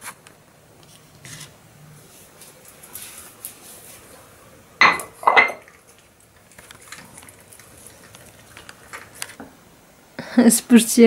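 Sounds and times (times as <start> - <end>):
ceramic bowl clattering on tiles: 4.8 - 5.8
dog eating wet food: 5.7 - 9.2.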